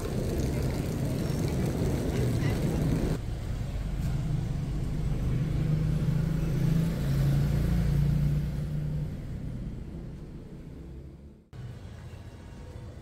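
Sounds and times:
vehicle engine humming: 0:00.0 - 0:11.8.

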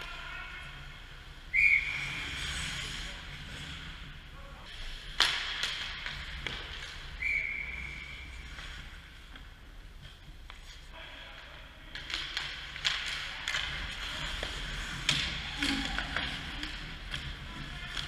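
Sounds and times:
skates scraping on ice: 0:00.0 - 0:10.9, 0:11.9 - 0:18.0
hockey sticks and puck clacking: 0:04.7 - 0:18.0
sharp crack: 0:05.1 - 0:07.3.

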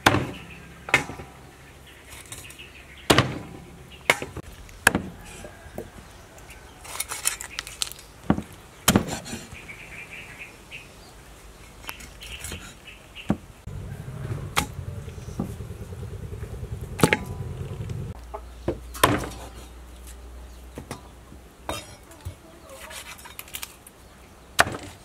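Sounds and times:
low steady hum: 0:13.7 - 0:18.3.

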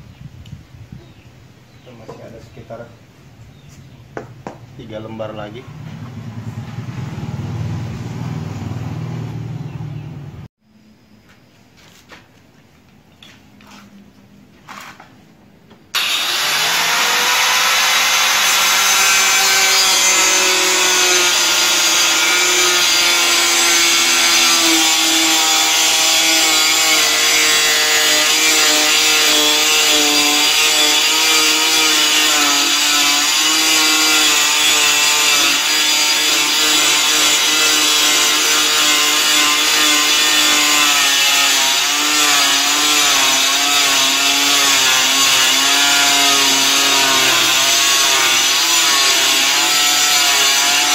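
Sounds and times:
power cutter cutting board: 0:16.0 - 0:50.9.

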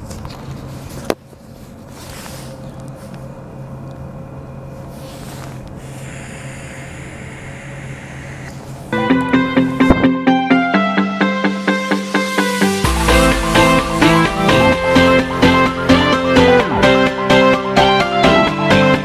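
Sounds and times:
steady low hum: 0:00.0 - 0:09.0, 0:11.6 - 0:18.5
e-cigarette hissing draw: 0:05.4 - 0:08.8.

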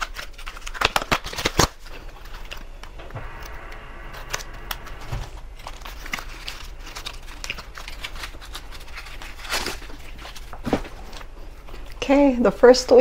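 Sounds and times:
loud paper rustle: 0:00.0 - 0:02.7, 0:04.7 - 0:11.9
paper crinkling and tearing: 0:00.0 - 0:03.4, 0:04.2 - 0:12.0.

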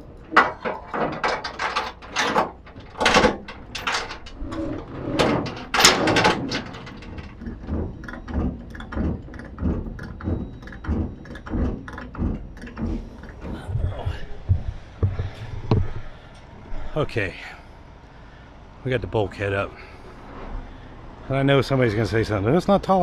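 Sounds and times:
wooden boards knocking and scraping: 0:00.3 - 0:03.5, 0:04.3 - 0:16.2.

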